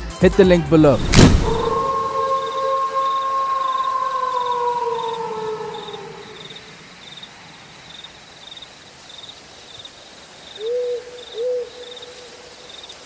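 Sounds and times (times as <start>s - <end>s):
owl hooting: 1.4s - 6.8s, 10.6s - 12.4s
wolf howl: 1.4s - 6.8s
crickets chirping: 1.5s - 13.0s.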